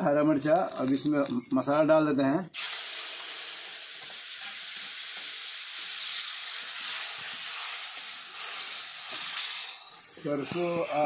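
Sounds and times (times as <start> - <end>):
masala sizzling in hot oil: 2.6 - 11.0.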